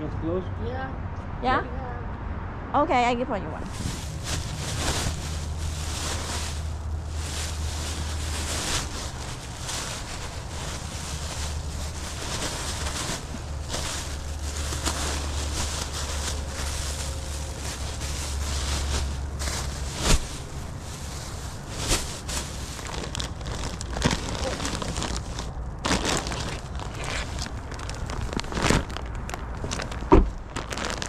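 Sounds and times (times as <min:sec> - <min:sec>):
plastic bags rustling: 0:03.7 - 0:31.0.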